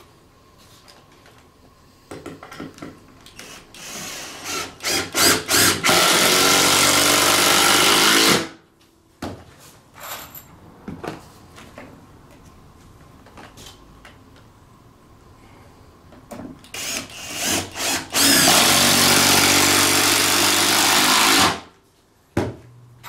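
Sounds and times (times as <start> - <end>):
power drill driving screw into wood: 3.4 - 8.6, 16.7 - 21.7.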